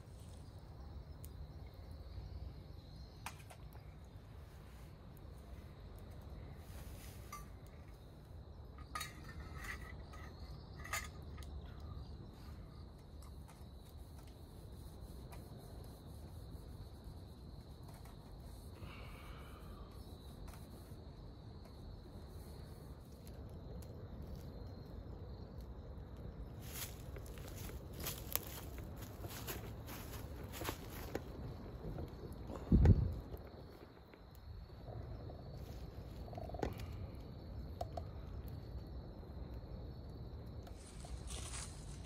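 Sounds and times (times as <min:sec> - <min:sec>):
insect trill: 0:00.0 - 0:42.0
camp cookware clinking: 0:07.2 - 0:07.8, 0:08.7 - 0:11.6.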